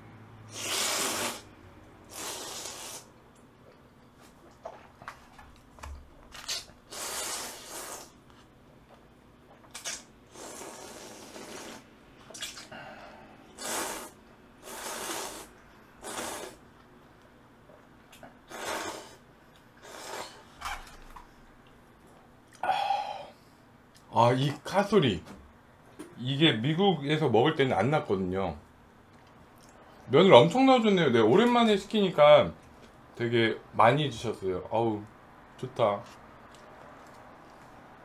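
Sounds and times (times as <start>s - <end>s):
slurping noodles: 0.5s - 1.5s, 2.1s - 3.1s, 6.5s - 8.2s, 9.7s - 12.7s, 13.6s - 16.6s, 18.5s - 19.2s, 19.8s - 20.5s.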